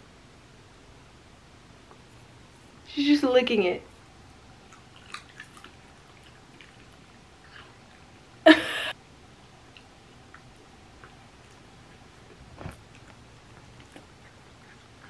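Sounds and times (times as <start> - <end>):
woman laughing: 8.5 - 8.9.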